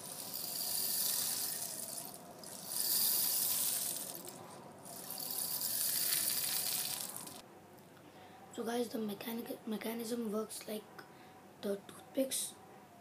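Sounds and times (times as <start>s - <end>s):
rain stick hiss: 0.0s - 7.4s.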